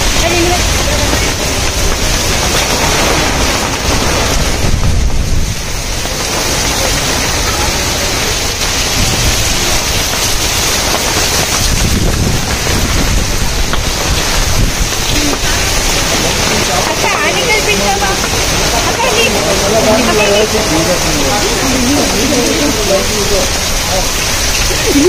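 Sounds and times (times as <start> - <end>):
wind on microphone: 0.0 - 7.4, 8.1 - 16.8
heavy rain pouring: 0.0 - 25.0.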